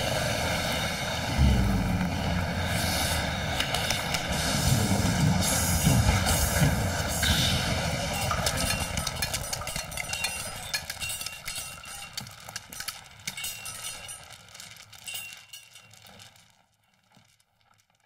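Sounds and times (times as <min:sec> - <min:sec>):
low earthquake rumble: 0:00.0 - 0:09.2.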